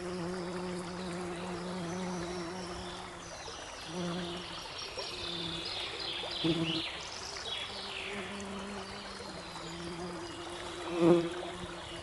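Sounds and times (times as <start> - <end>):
bee buzzing: 0.0 - 3.0, 3.9 - 4.5, 6.4 - 6.8, 9.4 - 11.7
babbling brook: 0.0 - 12.0.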